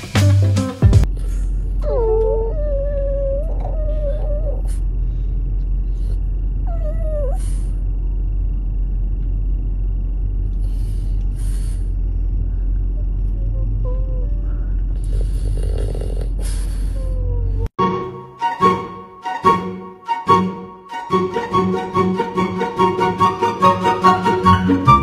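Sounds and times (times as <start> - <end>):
low rumble of car cabin: 1.0 - 17.8
dog whining: 1.8 - 4.9, 6.6 - 7.8, 12.9 - 14.8, 16.0 - 17.7.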